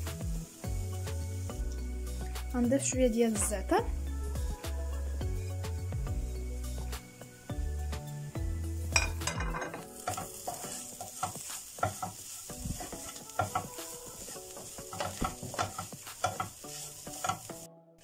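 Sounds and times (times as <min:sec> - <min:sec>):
light sizzle from pan: 0:00.0 - 0:17.7
wooden spatula scraping frying pan: 0:09.0 - 0:17.7.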